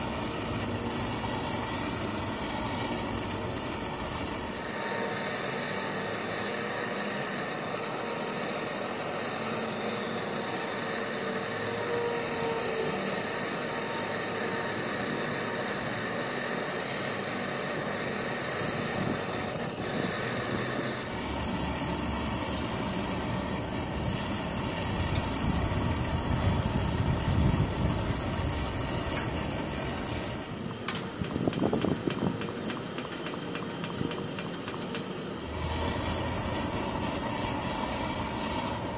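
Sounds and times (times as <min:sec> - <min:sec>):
propane torch hissing: 0:00.0 - 0:38.9
stove flame burning: 0:00.0 - 0:38.9
wind on microphone: 0:25.0 - 0:29.1
quick clicks: 0:30.8 - 0:35.2.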